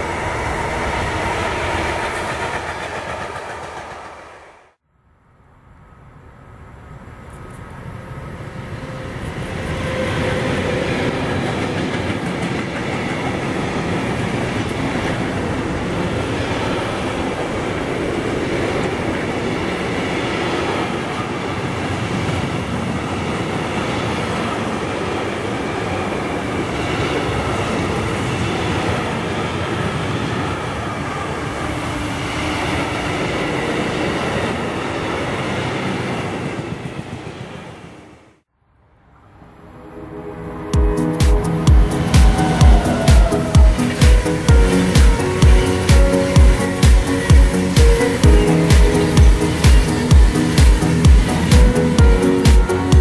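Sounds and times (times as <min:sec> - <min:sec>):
train wheel and rail noise: 0:00.0 - 0:04.8, 0:05.6 - 0:38.4, 0:39.2 - 0:53.0
electric freight train passing: 0:00.0 - 0:38.2, 0:39.0 - 0:53.0.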